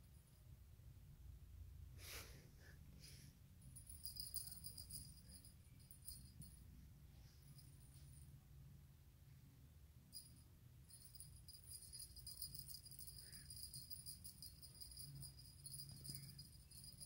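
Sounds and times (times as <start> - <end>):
small bell jingling: 3.6 - 6.6, 10.1 - 17.0.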